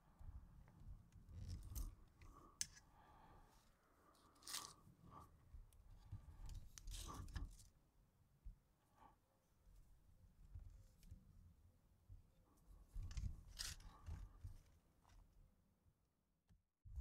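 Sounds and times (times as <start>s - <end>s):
soft crunching rustles: 3.6s - 4.8s.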